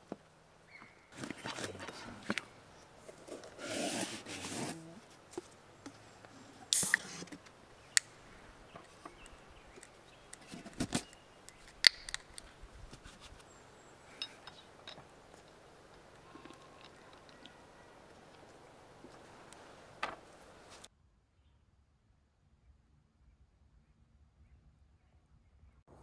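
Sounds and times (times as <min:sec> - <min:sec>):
beer can opening with hiss: 0:03.3 - 0:04.9, 0:06.3 - 0:08.1, 0:08.8 - 0:13.4.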